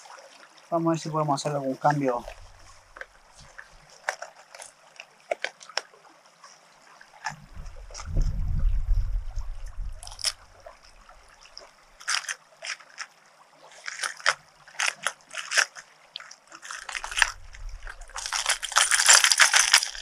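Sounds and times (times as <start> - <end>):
microphone handling rumble: 2.2 - 3.1, 7.4 - 10.9, 17.0 - 19.0
plastic lures clicking and rattling: 12.0 - 13.1, 13.8 - 20.0.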